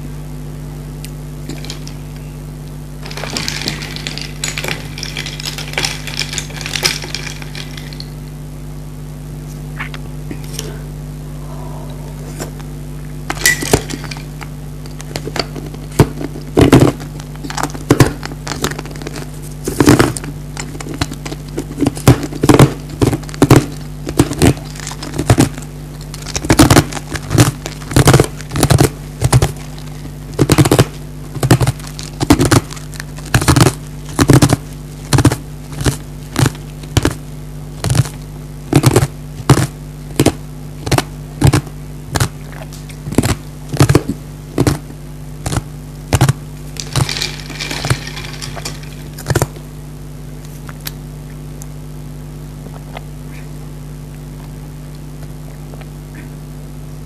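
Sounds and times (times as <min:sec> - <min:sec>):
ice cubes crunched between teeth: 0:03.0 - 0:08.2, 0:45.5 - 0:49.6.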